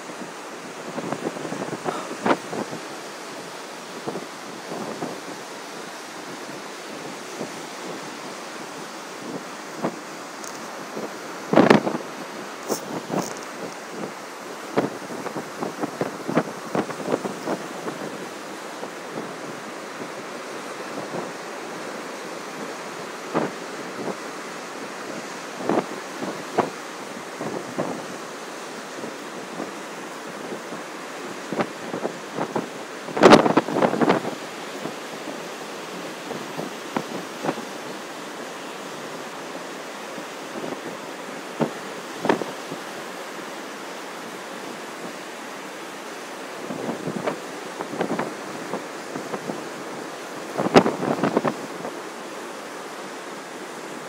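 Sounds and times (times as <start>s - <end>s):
wind buffeting microphone: 0.0s - 24.2s, 28.8s - 38.0s, 46.6s - 52.0s
surf breaking on shore: 0.0s - 54.0s.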